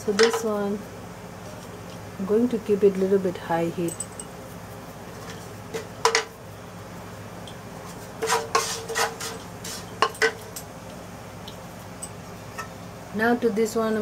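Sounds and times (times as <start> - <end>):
spatula scraping a wok: 7.8 - 10.4.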